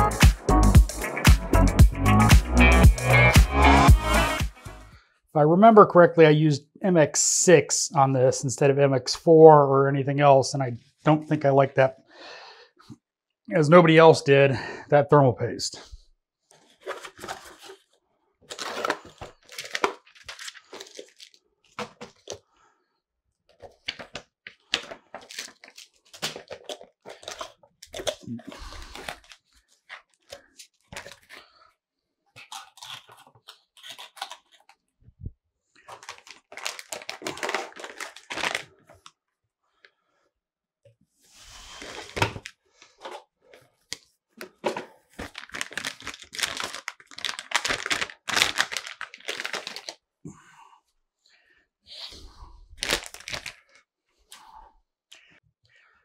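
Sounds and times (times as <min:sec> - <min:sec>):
crinkling and rustling bag: 0:16.5 - 0:22.4, 0:23.5 - 0:31.7, 0:35.8 - 0:39.2, 0:41.8 - 0:50.0, 0:52.8 - 0:53.8.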